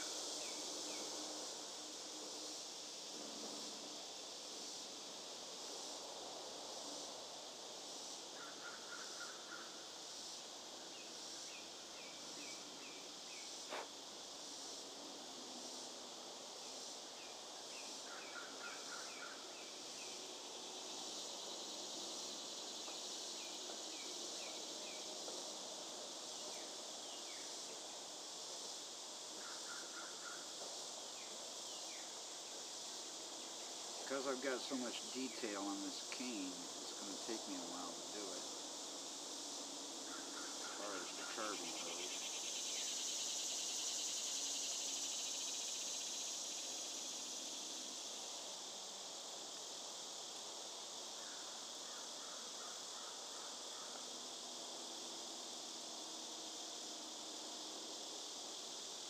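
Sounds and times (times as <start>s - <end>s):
insects chorus: 0.0s - 59.0s.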